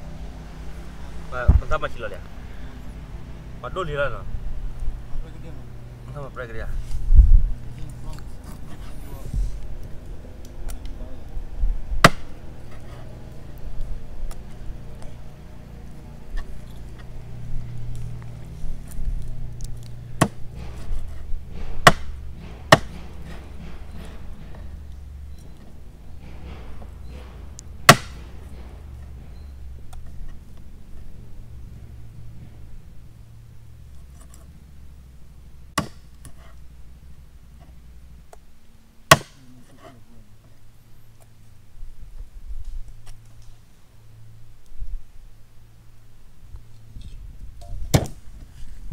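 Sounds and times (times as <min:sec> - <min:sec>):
sharp impacts: 0:11.9 - 0:12.6, 0:20.0 - 0:33.2
sharp chopping strikes: 0:12.0 - 0:12.4, 0:20.2 - 0:24.2, 0:27.8 - 0:28.7, 0:35.8 - 0:36.1, 0:39.1 - 0:39.4.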